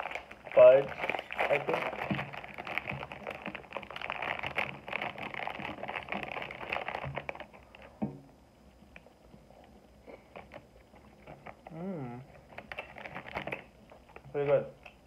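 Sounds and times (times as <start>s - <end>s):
plastic bag crinkling: 0.0s - 8.0s, 10.2s - 14.3s
soft chewing: 8.6s - 15.0s
person humming: 11.6s - 12.3s.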